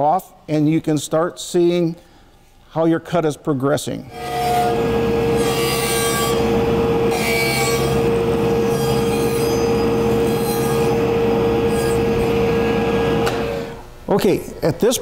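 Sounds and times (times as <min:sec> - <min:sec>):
saw scraping wood: 0:04.1 - 0:13.8
table saw whining: 0:04.1 - 0:13.8.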